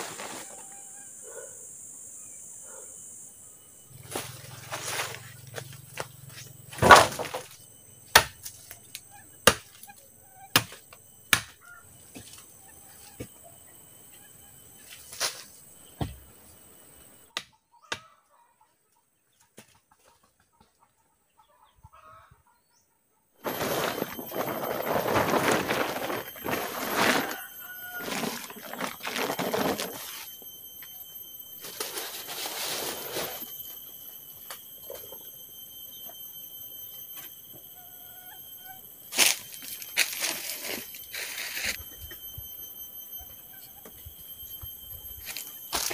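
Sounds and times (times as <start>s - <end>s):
plastic tarpaulin rustling: 23.4s - 30.3s.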